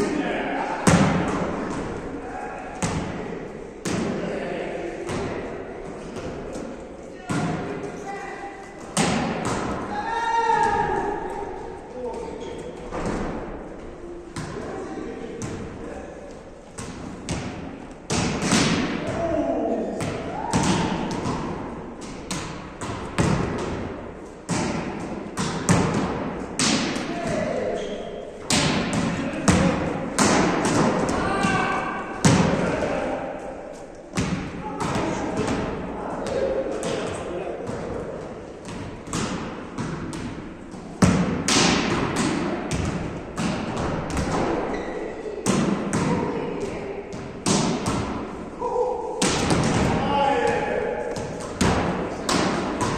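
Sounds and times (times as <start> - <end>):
volleyballs being struck: 0.8 - 4.4, 5.0 - 8.0, 8.7 - 11.4, 16.7 - 52.9
balls bouncing on wooden floor: 34.2 - 48.3.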